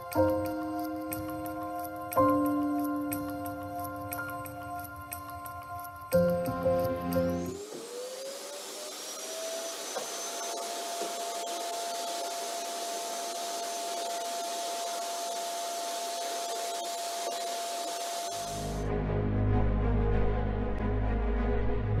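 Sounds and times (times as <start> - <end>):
vacuum cleaner motor running: 7.2 - 18.8.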